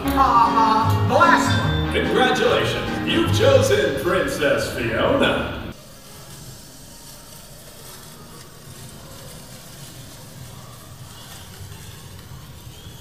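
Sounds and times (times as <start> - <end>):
ride vehicle rumble and hiss: 4.3 - 13.0.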